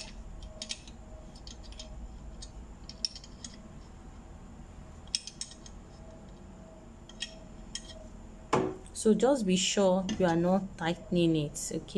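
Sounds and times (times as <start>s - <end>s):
spanner clicking on metal nut: 0.0s - 3.6s.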